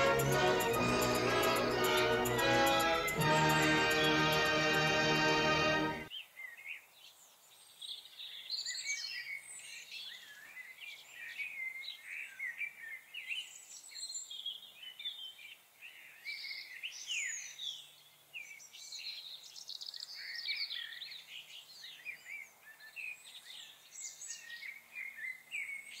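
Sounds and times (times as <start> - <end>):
music: 0.0 - 6.1
songbirds chirping and warbling: 5.6 - 26.0.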